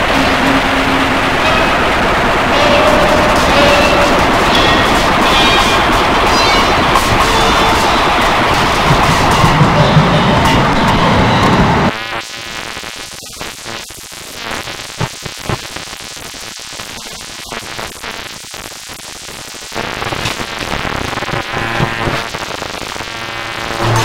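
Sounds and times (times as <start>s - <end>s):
electronic noise music: 0.0s - 18.4s, 19.2s - 24.0s
scattered electronic clicks: 0.0s - 18.7s.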